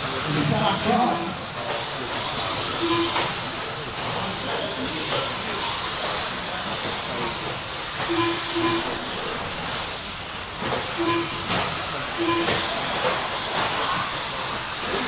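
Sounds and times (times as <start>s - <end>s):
high motor whine: 0.0s - 15.0s
rc truck motors and tyres hissing: 0.0s - 15.0s
short electronic beeps: 2.8s - 3.4s, 8.1s - 9.1s, 11.0s - 12.9s.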